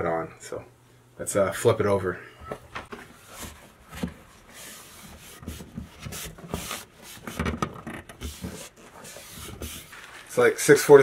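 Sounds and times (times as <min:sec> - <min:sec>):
wooden panel scraping: 0:02.8 - 0:10.4.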